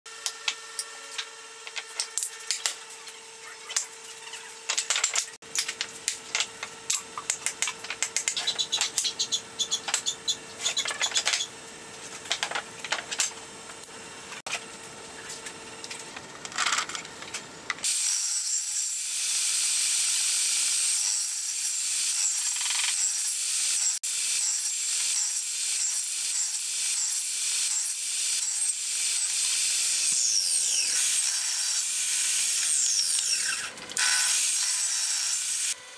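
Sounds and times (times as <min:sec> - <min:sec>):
table saw cutting wood: 0:17.8 - 0:35.9.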